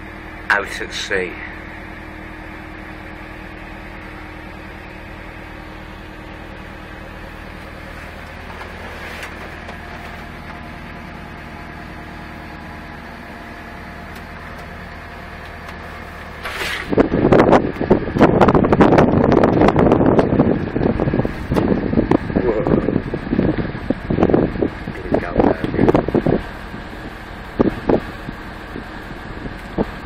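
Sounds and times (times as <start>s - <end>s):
excavator diesel engine running: 0.0s - 30.0s.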